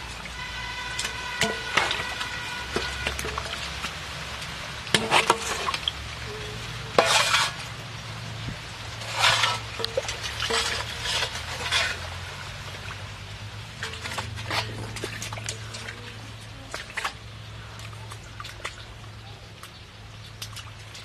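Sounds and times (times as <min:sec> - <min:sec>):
bowl splashing muddy water: 0:00.0 - 0:21.0
metal bowl clinking on steel basin: 0:01.0 - 0:02.2.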